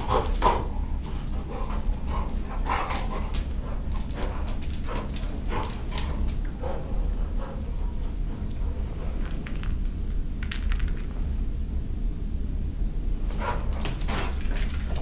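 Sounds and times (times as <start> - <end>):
claws clicking on tiled floor: 2.6 - 6.5, 9.2 - 11.2, 13.4 - 15.0.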